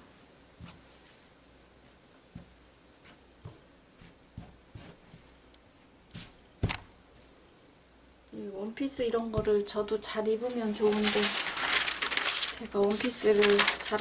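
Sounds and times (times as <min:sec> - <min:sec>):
fabric rustling: 0:10.3 - 0:14.0.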